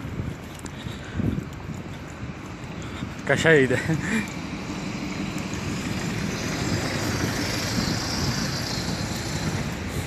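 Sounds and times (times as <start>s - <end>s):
street traffic: 0.0s - 10.0s
bus driving past: 3.4s - 10.0s.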